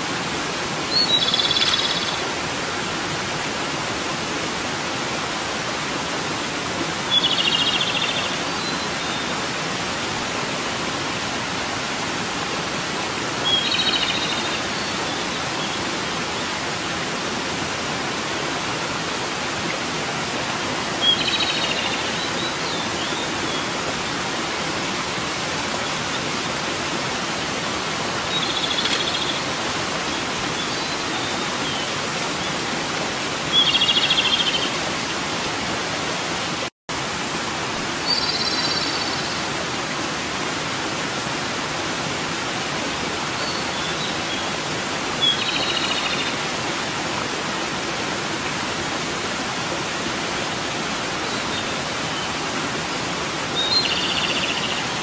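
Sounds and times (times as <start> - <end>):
bird singing trilled phrases: 0.9 - 2.2, 53.6 - 54.8.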